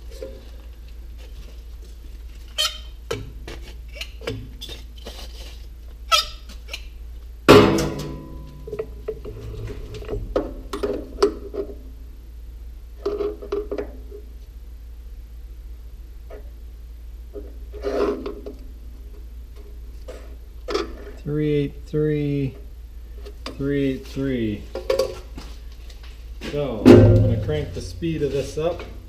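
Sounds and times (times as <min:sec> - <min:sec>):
steady low hum: 0:07.0 - 0:13.0, 0:18.4 - 0:29.0
loud ringing metal clank: 0:07.5 - 0:09.5, 0:26.8 - 0:28.6.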